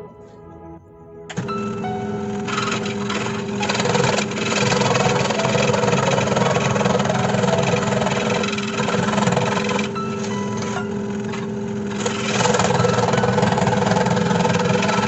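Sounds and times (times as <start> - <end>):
motor hum: 1.3 - 15.0
jigsaw cutting wood: 2.4 - 9.9, 11.2 - 15.0.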